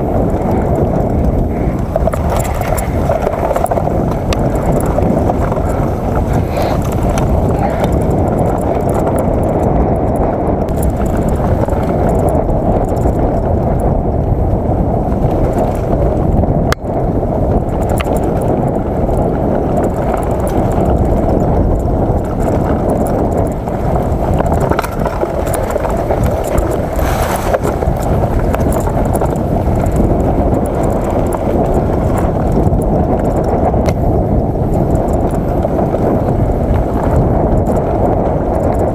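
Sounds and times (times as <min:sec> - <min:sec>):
bike rattling over bumps: 0:00.0 - 0:38.9
wind and trail vibration rumble: 0:00.0 - 0:38.9.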